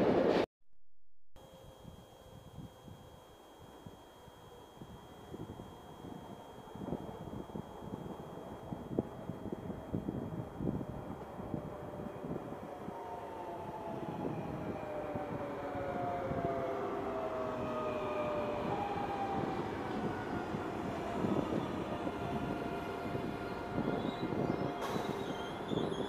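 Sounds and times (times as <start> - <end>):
train motor whine: 1.4 - 26.0
train wheels rumbling on rails: 19.1 - 26.0.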